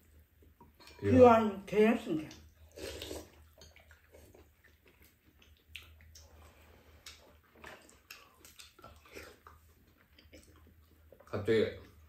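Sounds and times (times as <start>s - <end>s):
sipping and chewing: 2.3s - 12.0s.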